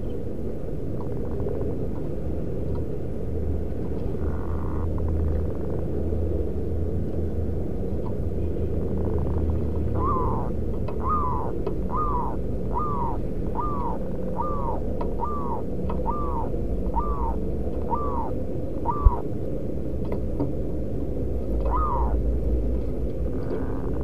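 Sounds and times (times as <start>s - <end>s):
steady low rumble: 0.0s - 24.0s
dove calling: 9.8s - 19.3s, 21.6s - 22.2s.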